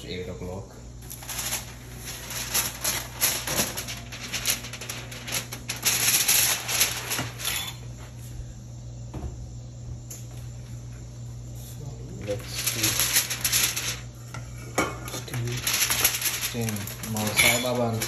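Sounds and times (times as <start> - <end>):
steady low hum: 0.0 - 18.0
foil tray crinkling and scraping: 1.0 - 8.0, 12.0 - 18.0.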